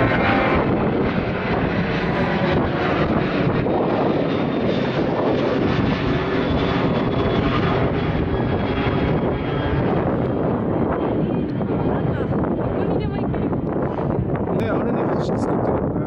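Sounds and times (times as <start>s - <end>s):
jet airliner engines overhead: 0.0s - 16.0s.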